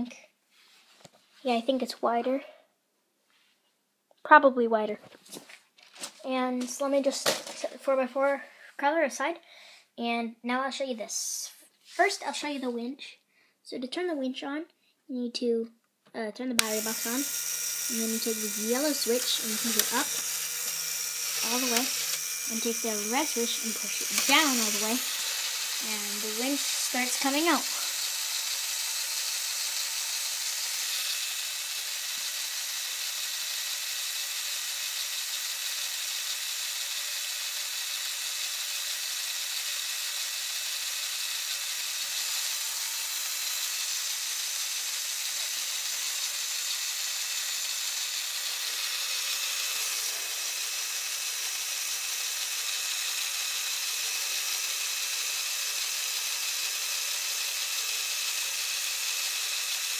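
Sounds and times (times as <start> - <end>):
toy motor whirring: 6.6 - 7.8, 16.6 - 59.9.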